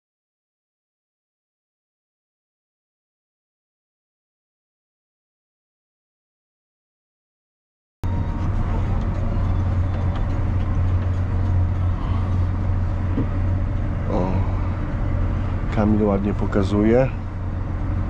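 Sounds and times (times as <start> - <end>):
tractor diesel engine droning: 8.0 - 18.0.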